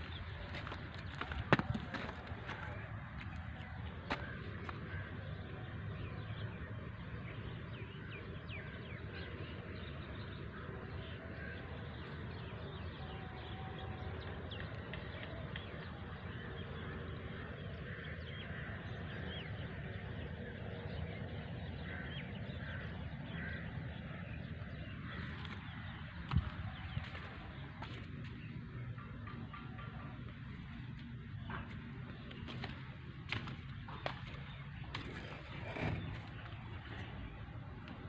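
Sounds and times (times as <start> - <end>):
crows cawing: 21.8 - 23.6.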